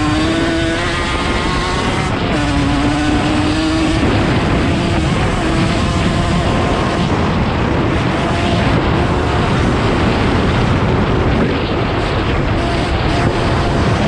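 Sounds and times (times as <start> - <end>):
motorcycle engine running: 0.0 - 14.0
wind rumble on microphone: 0.0 - 14.0.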